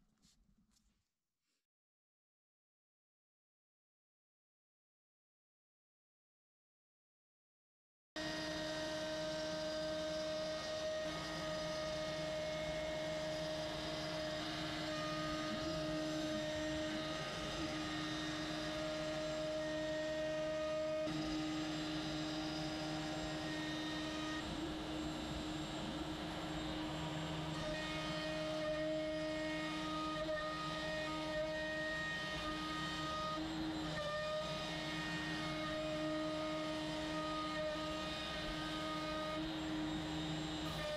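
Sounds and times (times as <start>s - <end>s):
router spindle cutting wood: 8.2s - 40.9s.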